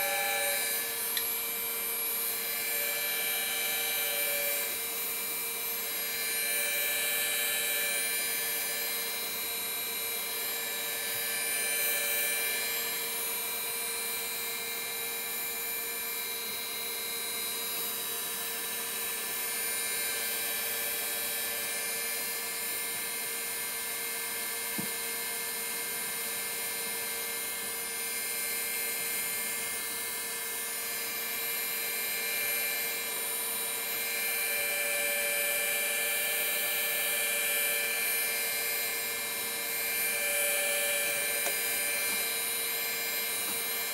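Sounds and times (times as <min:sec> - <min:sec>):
gyroscope rotor whining: 0:00.0 - 0:04.9.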